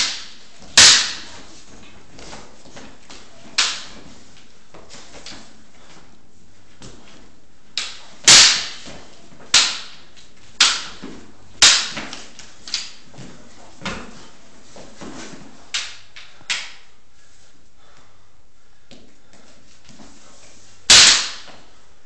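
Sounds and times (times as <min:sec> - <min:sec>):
wooden sticks clacking together: 0:03.4 - 0:04.0, 0:10.6 - 0:13.0.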